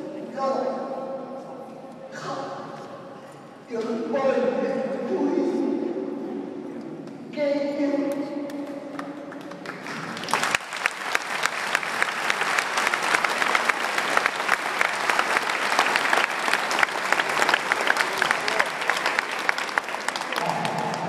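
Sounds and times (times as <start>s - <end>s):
crowd applauding: 8.6s - 21.0s.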